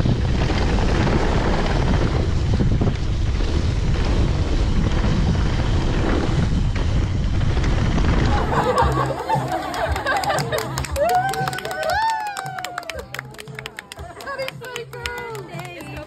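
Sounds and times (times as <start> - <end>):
wind rushing over microphone: 0.0 - 10.1.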